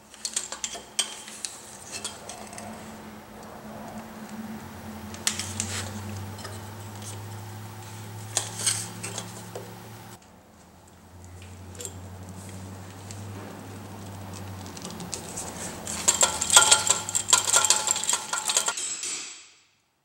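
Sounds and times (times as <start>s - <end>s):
metal tubes clinking on wood and steel: 0.0s - 10.2s, 11.4s - 19.3s
steady low hum: 1.5s - 10.2s.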